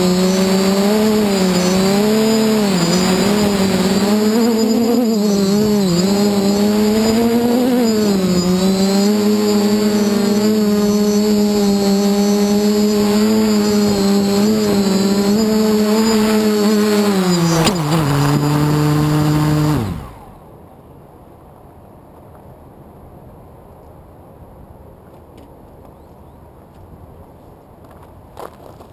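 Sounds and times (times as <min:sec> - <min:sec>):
drone motors buzzing: 0:00.0 - 0:20.4.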